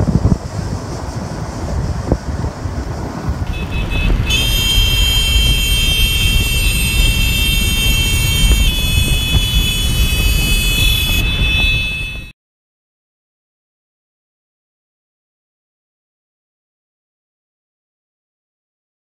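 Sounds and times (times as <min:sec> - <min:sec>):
high-pitched whine: 0:00.0 - 0:12.3
wind rumble on microphone: 0:00.0 - 0:12.3
scooter engines running: 0:02.2 - 0:12.3.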